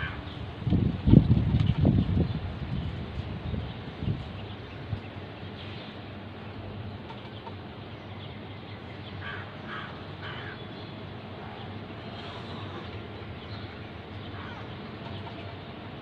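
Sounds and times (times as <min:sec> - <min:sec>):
crow cawing: 0:00.0 - 0:00.2, 0:09.2 - 0:10.6, 0:14.3 - 0:14.8
low rumble of street traffic: 0:00.0 - 0:16.0.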